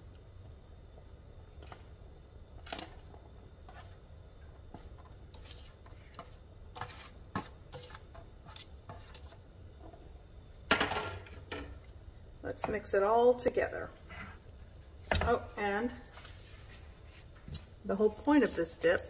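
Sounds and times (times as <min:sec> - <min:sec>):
low steady hum: 0:00.0 - 0:19.0
food scraping and rustling on pan: 0:01.5 - 0:10.2, 0:13.8 - 0:19.0.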